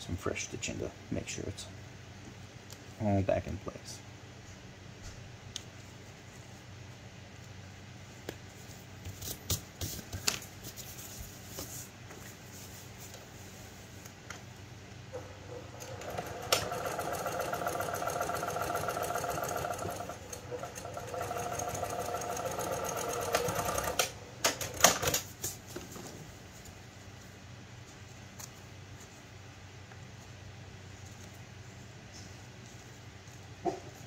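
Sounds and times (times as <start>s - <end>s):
sewing machine stitching: 15.8s - 24.2s.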